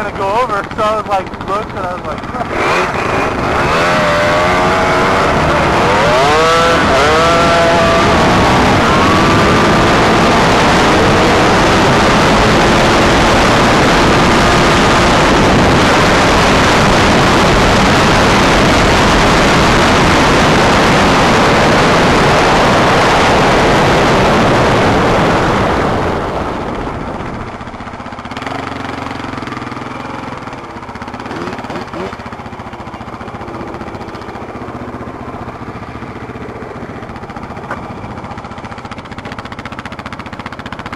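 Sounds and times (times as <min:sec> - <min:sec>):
quad engine running: 0:00.0 - 0:40.9
wind on microphone: 0:02.1 - 0:28.8.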